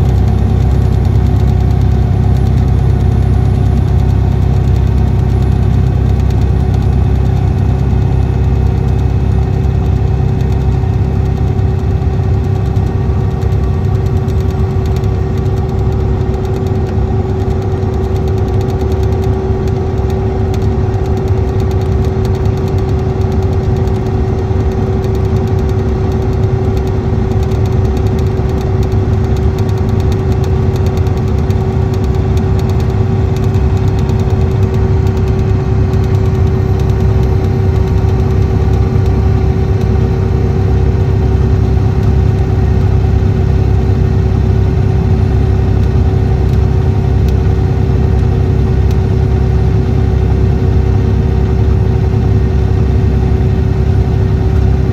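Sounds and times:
diesel engine droning: 0.0s - 54.9s.

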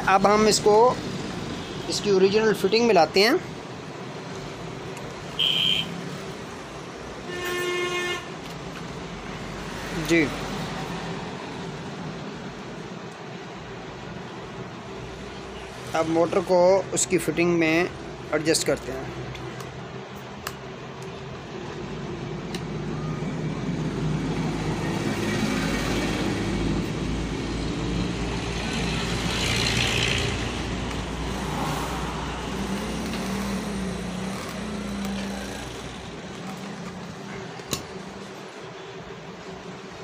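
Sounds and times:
vehicle engine passing by: 24.0s - 37.1s.

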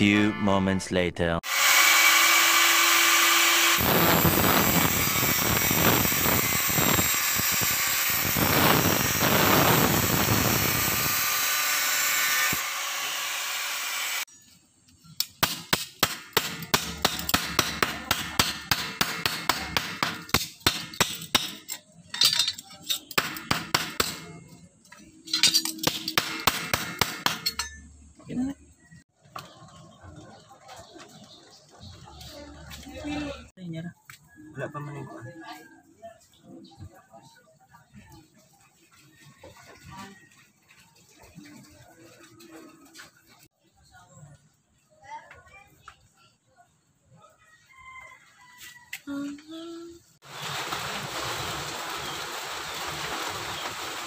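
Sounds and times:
angle grinder cutting metal: 1.4s - 14.3s
hammer tapping sheet metal: 15.2s - 21.7s, 23.0s - 24.4s, 25.3s - 27.8s.

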